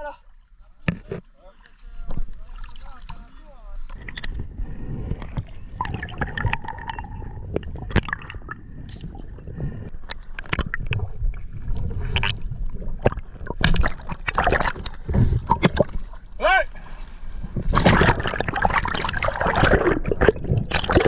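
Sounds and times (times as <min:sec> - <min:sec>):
water sloshing underwater: 0:00.2 - 0:21.0
low underwater rumble: 0:02.0 - 0:16.4.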